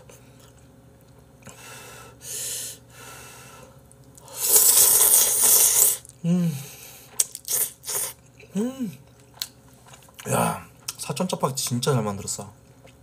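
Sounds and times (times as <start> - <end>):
breathing: 1.5 - 4.4, 6.3 - 7.2
loud slurp of noodles: 4.3 - 6.1, 7.5 - 8.2
person humming: 6.2 - 6.7, 8.4 - 9.0.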